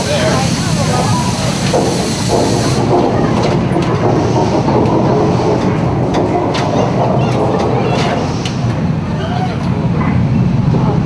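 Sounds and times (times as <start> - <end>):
loud rumble: 0.0 - 11.0
train running: 0.0 - 11.0
metal clanks and crashes: 1.6 - 9.1.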